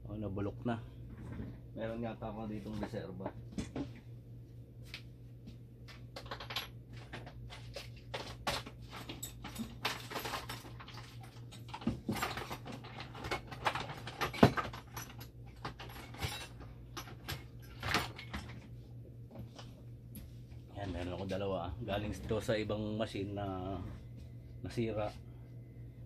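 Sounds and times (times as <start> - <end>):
metal parts clinking and rattling: 6.2 - 18.7
low hum: 14.7 - 26.0.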